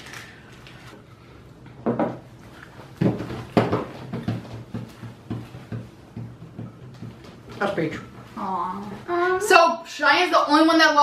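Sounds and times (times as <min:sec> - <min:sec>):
plastic canister knocking on wood: 0:03.0 - 0:07.9.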